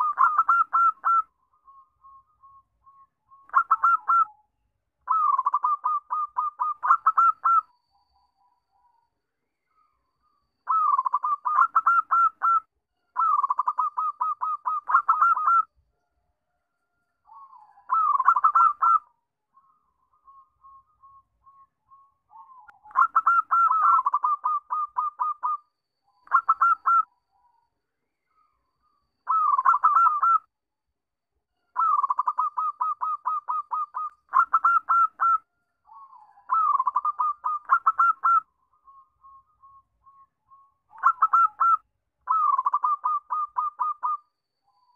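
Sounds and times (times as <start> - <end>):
dove staccato cooing: 0.0 - 1.3, 3.5 - 4.3, 5.1 - 7.6, 10.7 - 12.6, 13.2 - 15.7, 17.9 - 19.1, 22.4 - 25.6, 26.3 - 27.0, 29.3 - 30.4, 31.8 - 38.4, 40.9 - 44.2.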